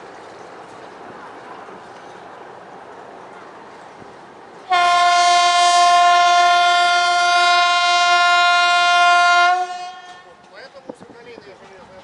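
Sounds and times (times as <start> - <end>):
locomotive air horn blast: 4.7 - 10.3.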